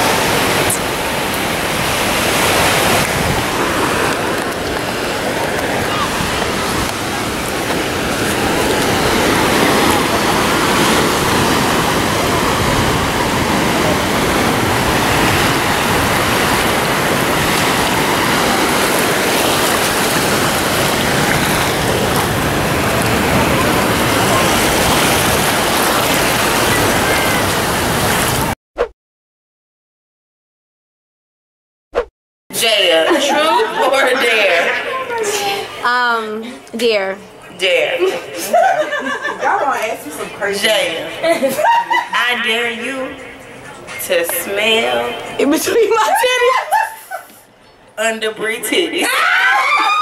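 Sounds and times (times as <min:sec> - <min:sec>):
surf splashing around wading feet: 0:00.0 - 0:28.6.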